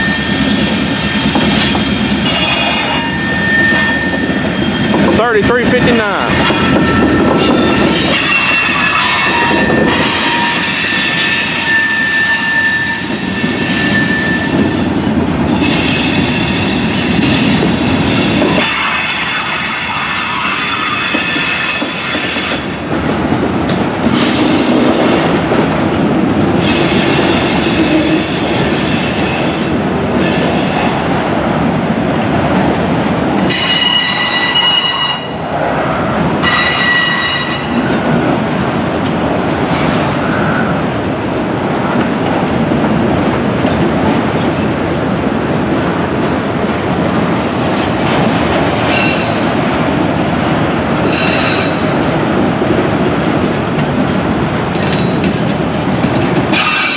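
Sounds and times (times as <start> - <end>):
train wheels rumbling and rattling: 0.0 - 56.9
wheel squeal: 2.3 - 5.0, 6.5 - 16.8, 18.4 - 22.7.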